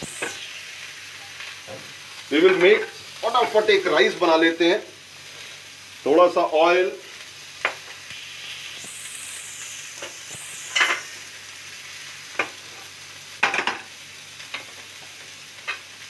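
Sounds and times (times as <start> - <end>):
food sizzling in oil: 0.0 - 16.0.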